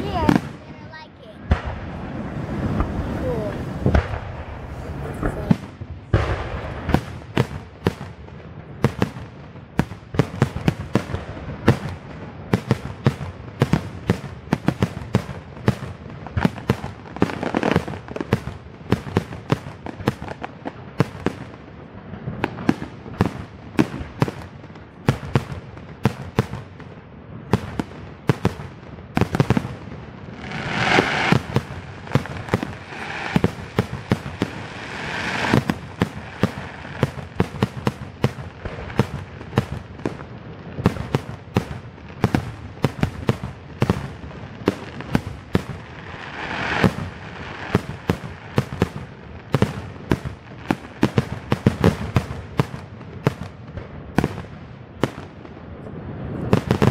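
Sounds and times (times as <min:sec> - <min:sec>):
fireworks crackling: 0:00.0 - 0:56.9
firework shells bursting: 0:30.4 - 0:39.7.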